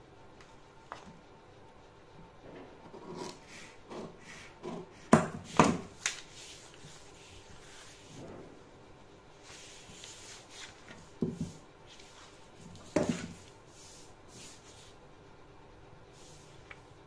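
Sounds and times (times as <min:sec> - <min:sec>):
hands rubbing and scraping: 0:05.9 - 0:08.3.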